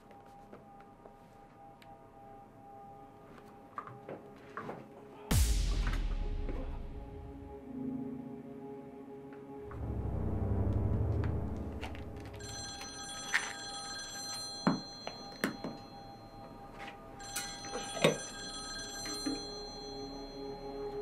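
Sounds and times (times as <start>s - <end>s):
low musical drone: 5.3s - 12.6s, 19.5s - 21.0s
desk telephone ringing: 12.4s - 21.0s.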